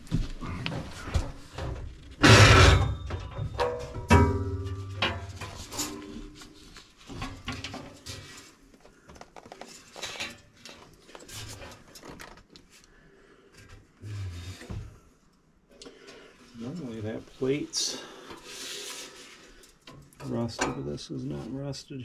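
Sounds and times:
metal clanking and scraping: 1.0 - 8.6, 9.6 - 12.2.

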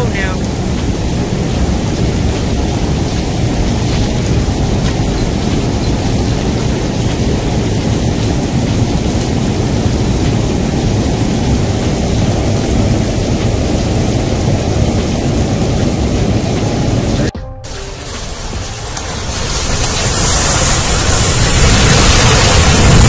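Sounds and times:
heavy rain pouring: 0.0 - 23.0
rushing flood water: 0.0 - 23.0.

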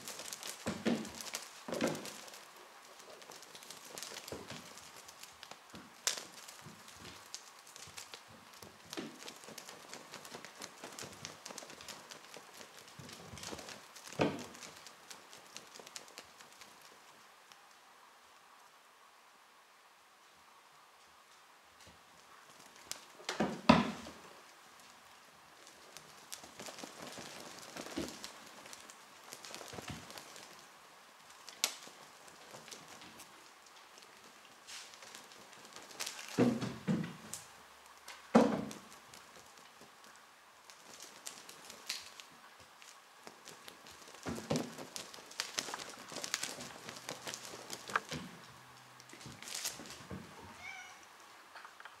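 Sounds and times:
cat paws scrabbling on wood floor: 0.0 - 17.7, 21.8 - 51.0
cat meowing: 50.4 - 51.1.

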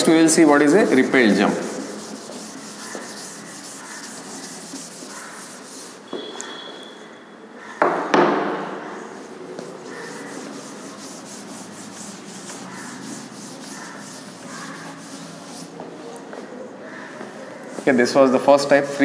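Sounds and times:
duster scrubbing blackboard: 0.0 - 6.1, 9.6 - 15.8
loud sharp knocks: 7.8 - 8.6.

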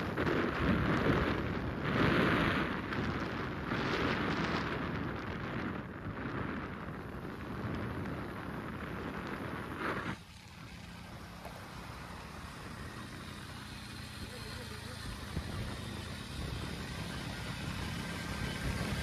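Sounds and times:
vehicle moving on road: 0.0 - 19.0
wind buffeting microphone: 0.0 - 19.0.

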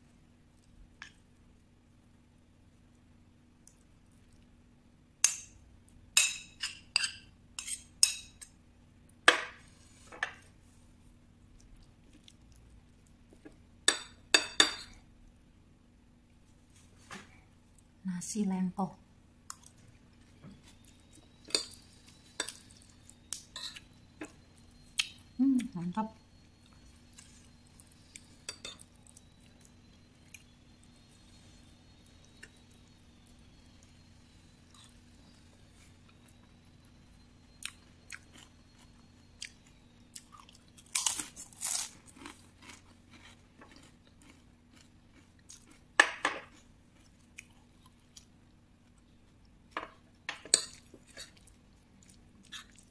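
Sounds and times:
faint steady hum: 0.0 - 52.9
metal spoon scraping ceramic plate: 6.2 - 8.4, 23.6 - 23.8
spoon clinking on ceramic plates: 6.2 - 8.5, 13.9 - 15.0, 23.5 - 23.9, 28.4 - 28.9, 49.8 - 51.3.

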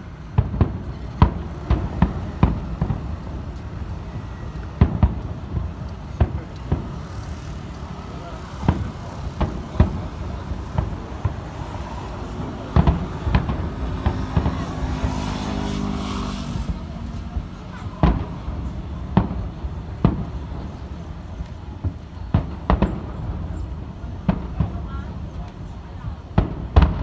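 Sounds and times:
distant fireworks booming: 0.0 - 27.0.

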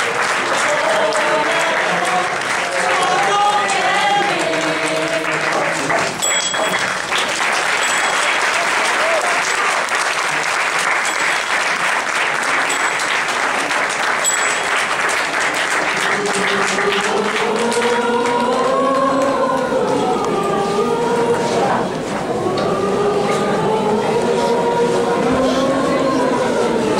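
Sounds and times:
group of voices singing: 0.0 - 6.3, 15.6 - 26.9
audience applauding: 0.0 - 21.0.

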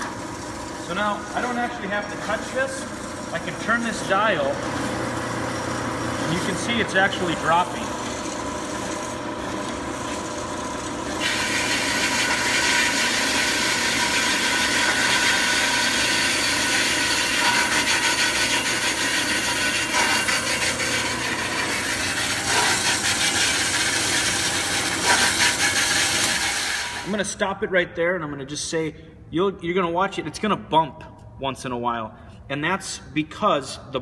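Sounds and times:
bandsaw motor hum: 0.0 - 27.1
bandsaw blade cutting steel: 11.2 - 27.1.

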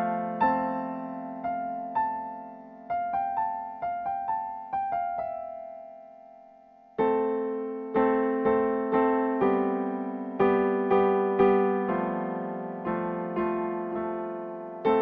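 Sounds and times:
keyboard chords: 0.0 - 15.0
piano melody single notes: 0.0 - 15.0.

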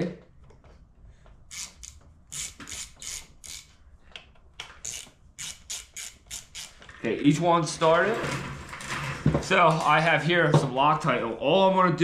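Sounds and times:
metallic clicks and scrapes of bolts: 1.5 - 7.0.

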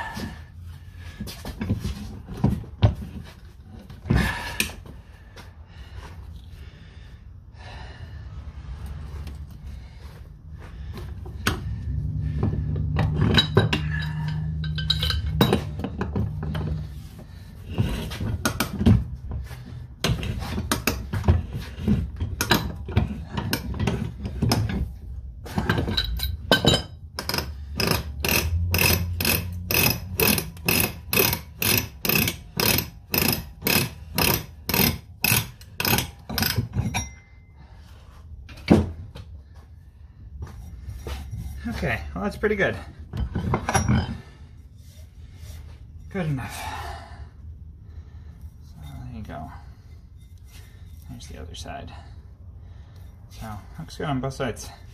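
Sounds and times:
metal clicks and clinks: 13.2 - 15.8
ratchet clicks: 27.2 - 36.6.

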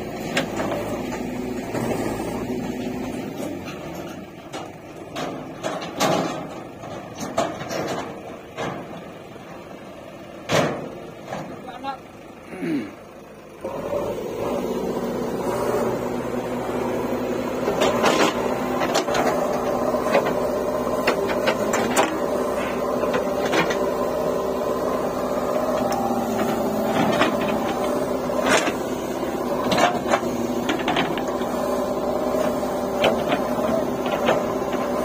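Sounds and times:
diesel engine running: 0.0 - 35.0
clanks and knocks from bucket: 3.8 - 8.9, 32.4 - 34.9.

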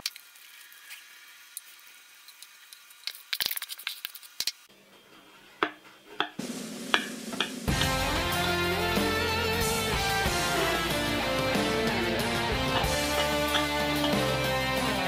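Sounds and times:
spoon clinking against glass: 12.7 - 14.4.

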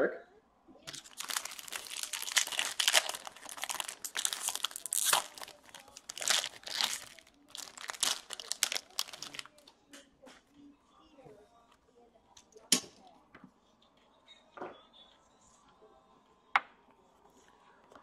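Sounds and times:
wrapper crinkling as torn open: 0.9 - 9.6.

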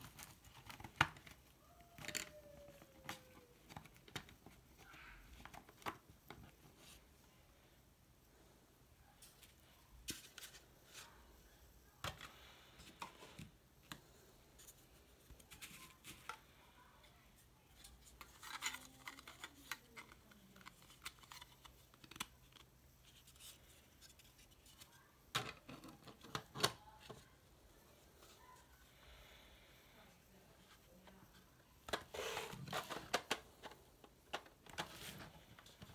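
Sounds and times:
plastic parts clicking: 0.0 - 6.5, 18.1 - 23.2
plastic sliding scrape: 31.9 - 33.2.

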